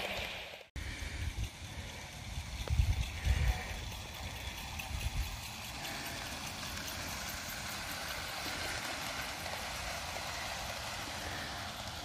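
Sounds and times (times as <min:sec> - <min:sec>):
model train rumbling on rails: 0:00.0 - 0:12.0.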